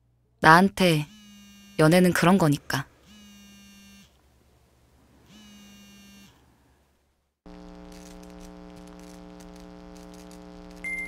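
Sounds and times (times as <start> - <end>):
neon sign buzzing: 0.8 - 2.1, 2.9 - 4.2, 5.2 - 6.4, 7.5 - 11.0.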